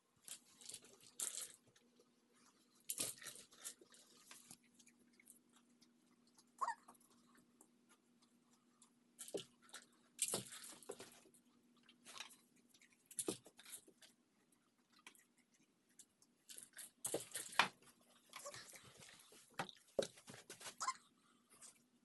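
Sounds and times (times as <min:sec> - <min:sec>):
faint steady hum: 0:00.0 - 0:22.0
kibble rattling in plastic toy: 0:00.2 - 0:01.8.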